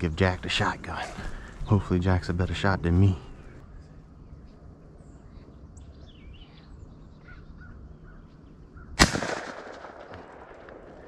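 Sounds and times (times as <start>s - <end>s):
faint bird calls: 0.0s - 9.0s
shotgun shot: 9.0s - 11.0s.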